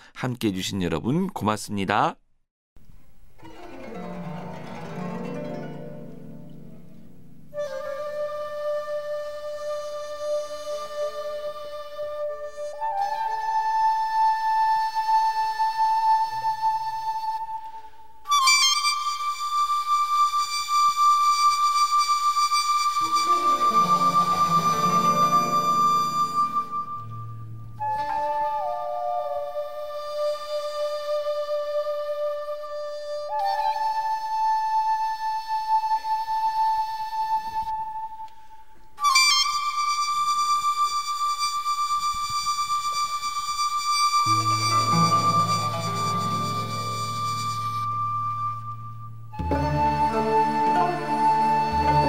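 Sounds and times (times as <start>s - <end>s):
instrumental music held notes: 2.8s - 52.0s.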